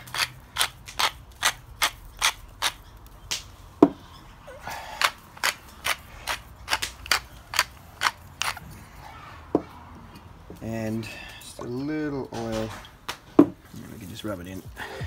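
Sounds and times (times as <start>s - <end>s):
salt and pepper mills grinding: 0.0s - 3.1s, 4.7s - 8.7s.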